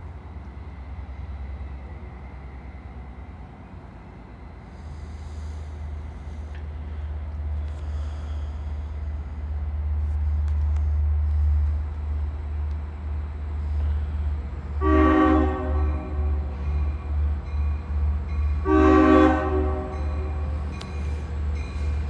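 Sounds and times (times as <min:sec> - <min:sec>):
train rumble: 0:00.0 - 0:22.0
train horn blasts: 0:14.8 - 0:16.6, 0:18.5 - 0:20.5.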